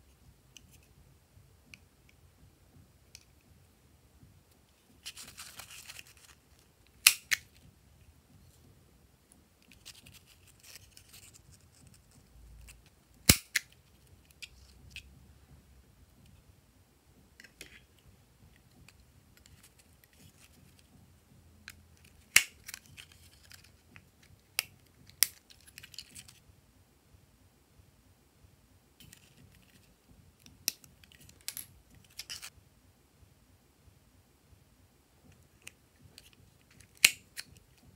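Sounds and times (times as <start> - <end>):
paper rustling: 5.0 - 6.7.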